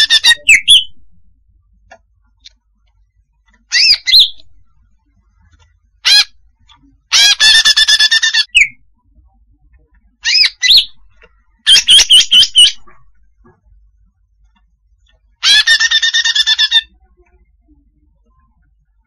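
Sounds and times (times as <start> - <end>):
bird whistling calls: 0.1 - 0.9.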